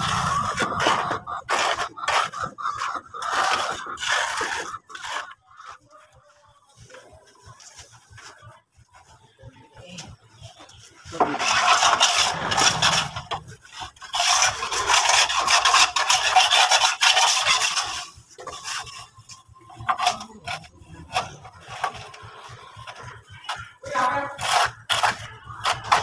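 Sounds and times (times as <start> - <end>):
wooden straightedge scraping wall: 11.1 - 22.2.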